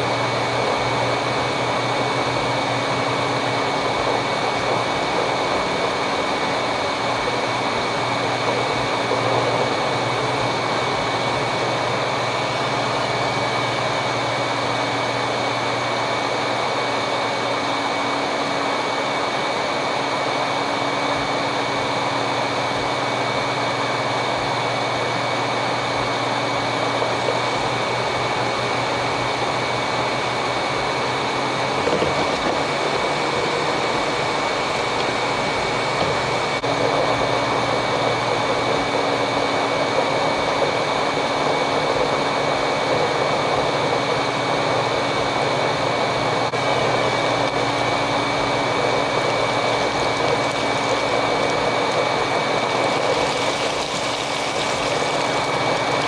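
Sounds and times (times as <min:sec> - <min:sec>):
robot vacuum running: 0:00.0 - 0:56.0.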